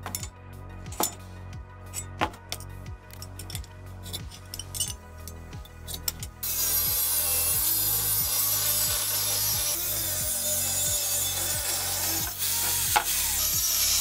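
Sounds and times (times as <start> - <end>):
background music with beat: 0.0 - 14.0
angle grinder cutting steel: 5.8 - 14.0.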